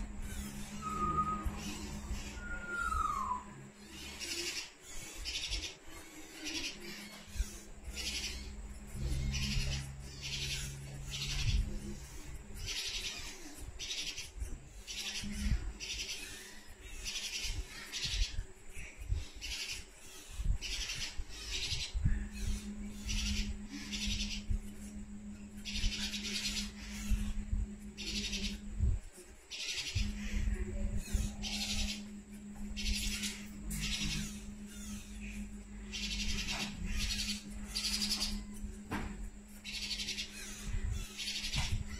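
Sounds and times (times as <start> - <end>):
parakeet chick begging calls: 25.6 - 28.7, 29.5 - 38.7, 39.6 - 41.9.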